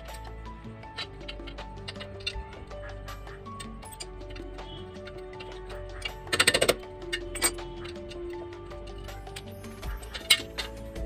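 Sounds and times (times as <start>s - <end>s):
instrumental background music: 0.0s - 11.0s
screwdriver clinking on metal: 3.5s - 11.0s.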